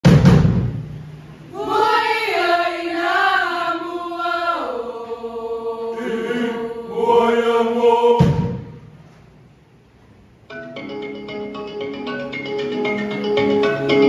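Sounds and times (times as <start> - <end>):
choir singing in unison: 1.5 - 8.9
sharp knock: 8.2 - 8.9.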